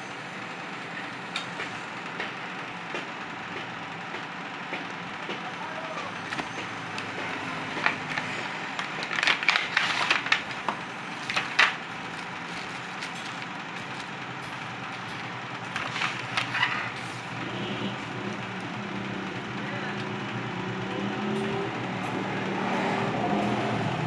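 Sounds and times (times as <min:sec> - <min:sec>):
steady background noise: 0:00.0 - 0:24.0
plastic bags crinkling: 0:07.8 - 0:14.2.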